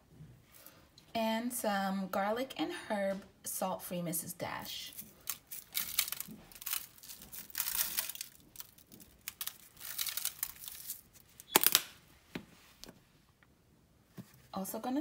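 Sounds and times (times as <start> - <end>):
plastic shaker rattling: 4.9 - 11.1
foil pan crinkling: 4.9 - 11.9.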